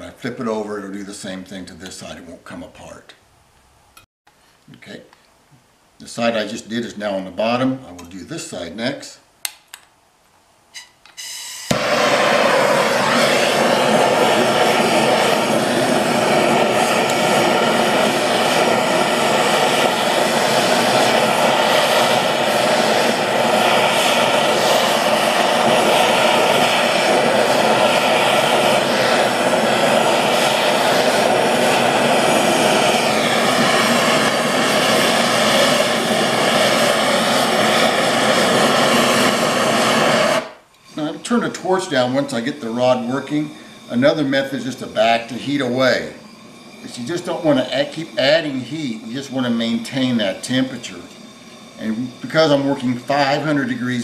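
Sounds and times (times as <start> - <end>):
gas torch roaring hiss: 11.2 - 54.0.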